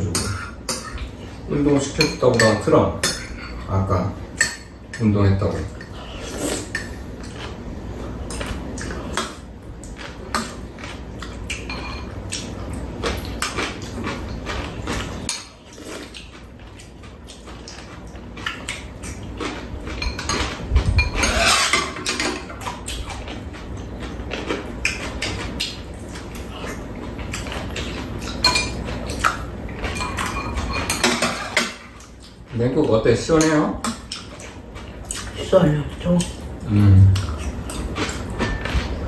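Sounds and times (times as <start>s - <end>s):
utensils clicking against bowls: 17.6s - 23.6s, 27.2s - 35.3s
mouth sounds of eating: 34.0s - 39.0s.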